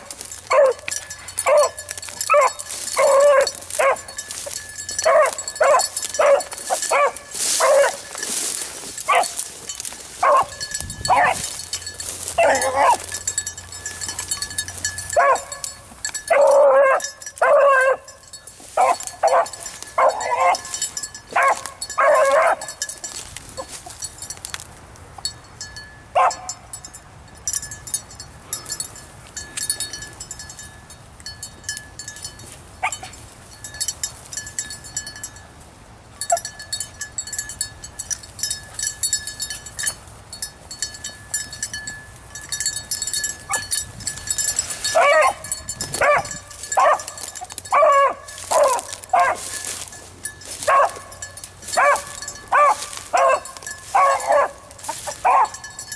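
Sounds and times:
dog baying: 0.0s - 4.2s, 5.0s - 8.1s, 10.2s - 11.5s, 12.4s - 13.2s, 16.3s - 18.1s, 18.8s - 20.7s, 21.3s - 22.7s, 44.9s - 49.5s, 51.8s - 55.6s.

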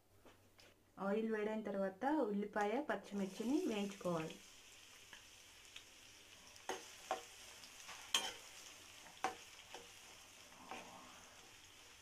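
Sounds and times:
onions sizzling in oil: 3.0s - 12.0s.

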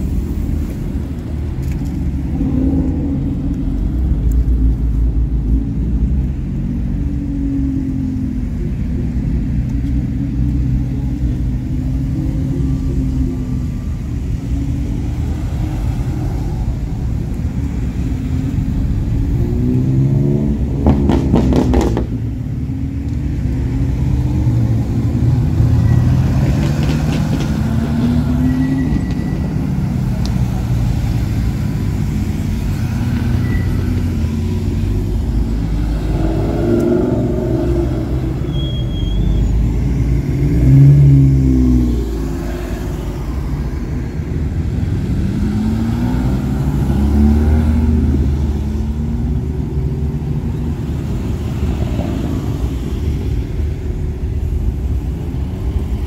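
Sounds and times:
cars revving past: 11.3s - 56.0s.

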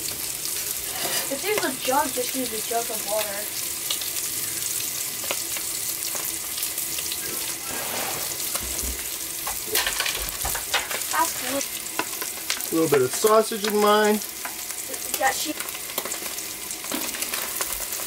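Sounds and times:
food sizzling in pans: 0.0s - 18.0s
spatula scraping a pan: 0.7s - 1.8s, 7.4s - 9.1s.

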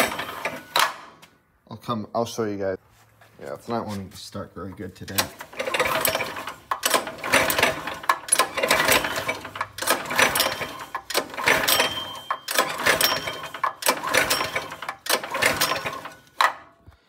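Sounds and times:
recoil starter cranking engine: 0.0s - 0.9s, 5.1s - 16.7s.

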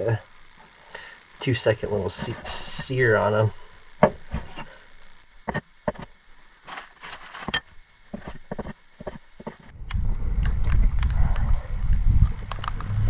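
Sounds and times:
loud low rumble: 9.7s - 13.0s.

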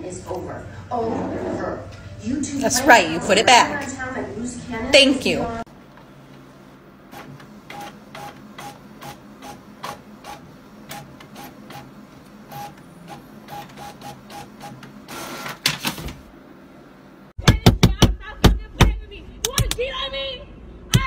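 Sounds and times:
printer paper whirr: 5.8s - 16.3s.

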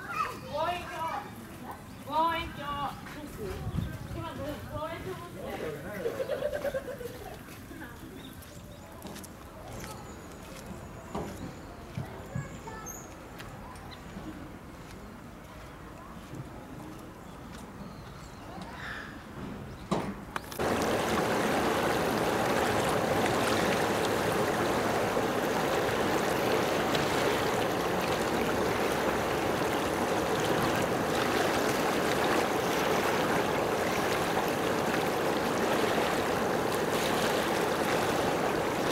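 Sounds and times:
flowing water rushing: 20.5s - 38.9s.

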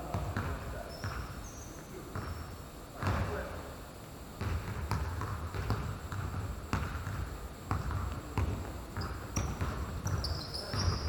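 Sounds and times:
basketball bouncing on hard court: 0.1s - 1.4s, 3.0s - 3.3s, 4.4s - 11.0s.

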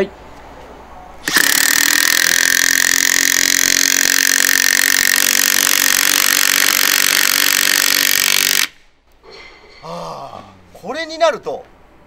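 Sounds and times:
impact wrench hammering: 1.2s - 8.8s.

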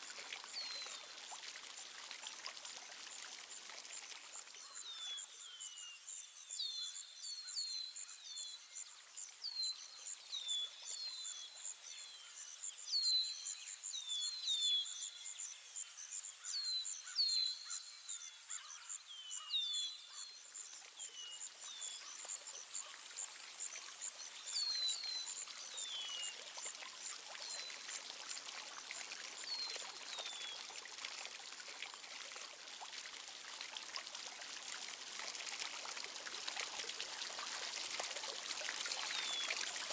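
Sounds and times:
running water trickling: 0.0s - 5.4s, 20.1s - 39.9s.

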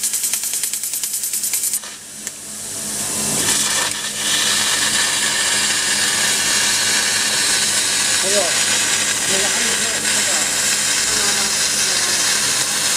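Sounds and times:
laser cutting hiss: 3.4s - 12.9s
rapid pulsing hiss: 4.2s - 12.9s.

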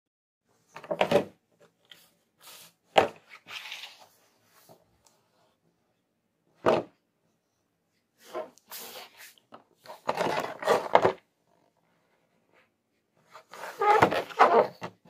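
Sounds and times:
plastic and card crinkling: 3.3s - 4.1s.

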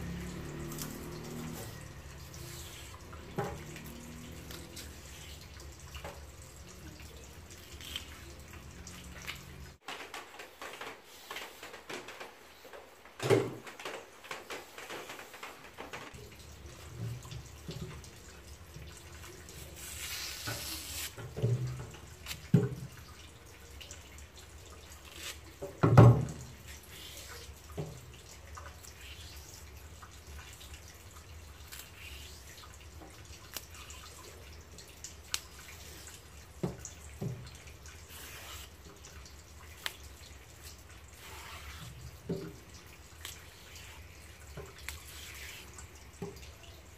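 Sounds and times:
soft scraping and tearing: 7.5s - 8.5s, 19.5s - 21.2s, 25.0s - 25.5s, 38.0s - 38.8s, 39.8s - 42.2s, 43.2s - 45.9s.

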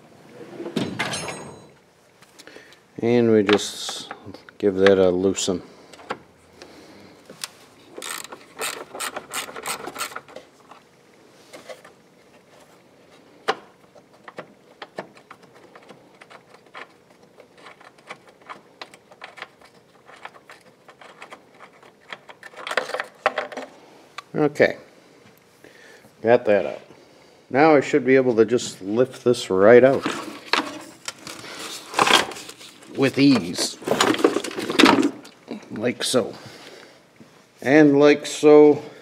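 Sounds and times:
socket ratchet clicking: 8.0s - 10.3s.

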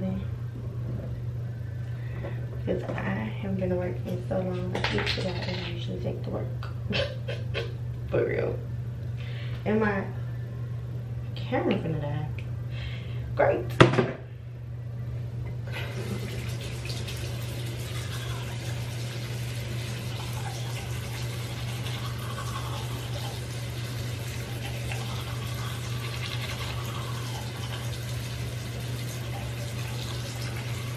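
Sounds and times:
low hum: 5.3s - 13.4s
sink tap running: 15.7s - 30.9s.

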